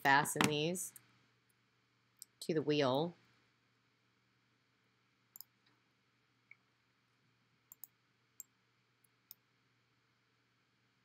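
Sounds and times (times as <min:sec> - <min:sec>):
room hum: 0:00.0 - 0:11.0
computer mouse clicks: 0:05.4 - 0:05.6, 0:07.7 - 0:08.5.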